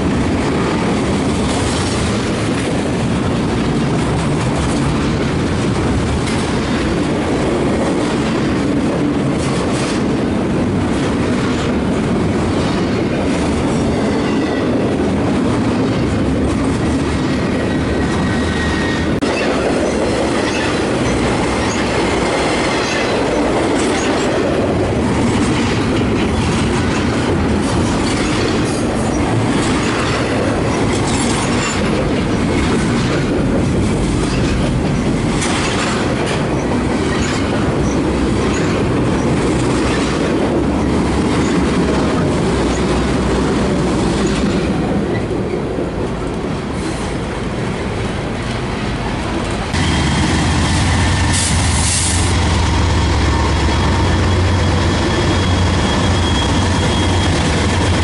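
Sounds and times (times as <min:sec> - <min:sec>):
wheels clacking over rail joints: 0:00.0 - 0:47.4
freight train wheels rumbling: 0:00.0 - 0:58.0
thin wheel squeal: 0:55.1 - 0:57.4.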